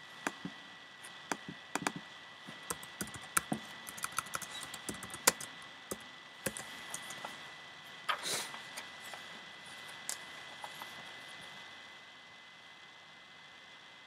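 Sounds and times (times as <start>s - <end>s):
faint high tone hum: 0.0s - 14.0s
keyboard key clicks: 1.3s - 2.0s.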